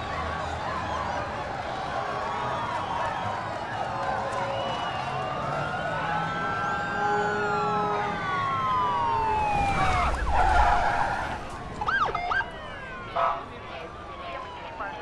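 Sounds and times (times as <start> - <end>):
police sirens wailing: 0.0 - 15.0
short siren whoops: 4.3 - 13.3.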